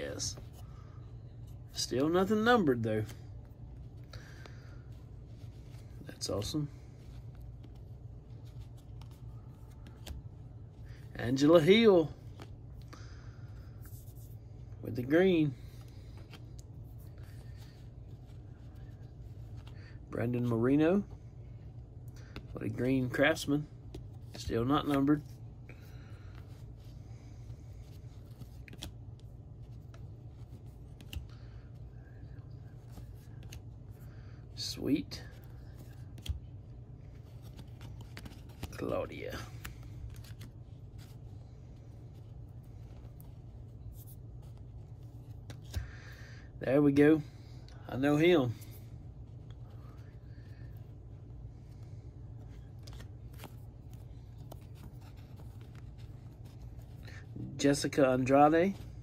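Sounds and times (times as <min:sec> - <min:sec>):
steady low hum: 0:00.0 - 0:59.0
cards flipping and snapping: 0:07.0 - 0:10.8, 0:27.7 - 0:31.8, 0:32.7 - 0:33.7, 0:35.4 - 0:46.1, 0:52.4 - 0:57.3.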